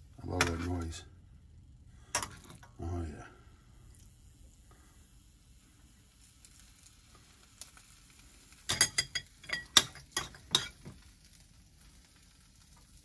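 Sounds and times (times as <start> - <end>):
metal tongs clinking on dishes: 8.7 - 10.9.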